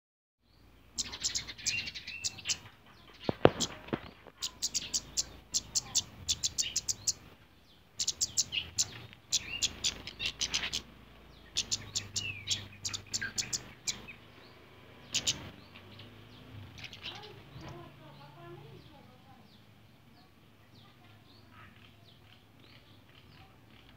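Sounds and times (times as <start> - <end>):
bird chirping high notes: 1.0 - 2.6, 4.4 - 7.3, 8.0 - 16.1.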